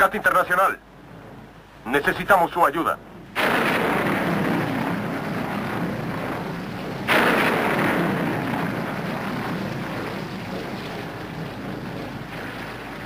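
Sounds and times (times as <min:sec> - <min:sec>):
rumbling sound effect: 0:03.2 - 0:13.0.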